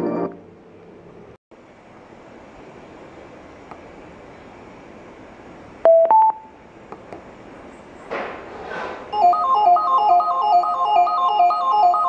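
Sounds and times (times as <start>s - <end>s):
speaker prompt beeps: 5.9s - 6.5s.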